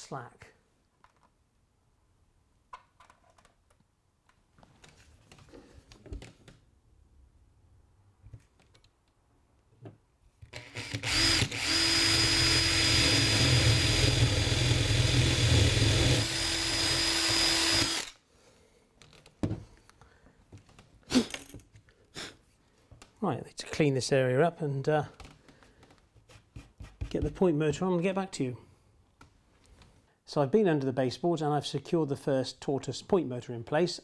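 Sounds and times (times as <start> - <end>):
cordless drill whining: 10.5 - 18.2.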